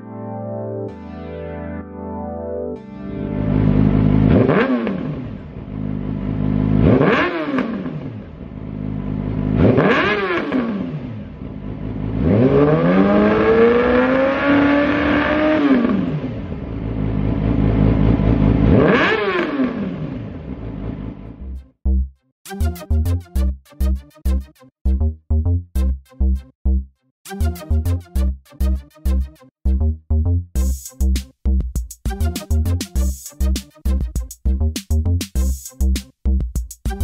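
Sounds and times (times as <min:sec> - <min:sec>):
motorcycle engine idling and revving: 0:03.4 - 0:21.6.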